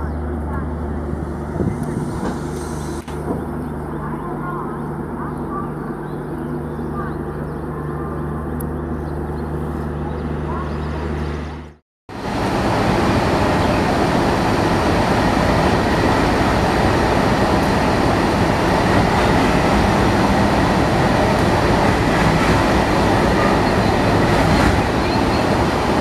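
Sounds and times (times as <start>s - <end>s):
diesel locomotive noise: 0.0s - 26.0s.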